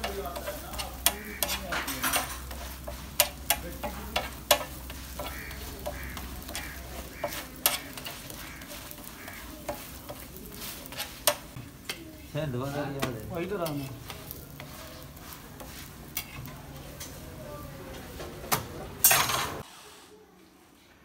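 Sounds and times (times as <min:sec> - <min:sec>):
metal tongs clicking and scraping: 0:00.0 - 0:05.4
bread sizzling in oil: 0:00.0 - 0:17.8.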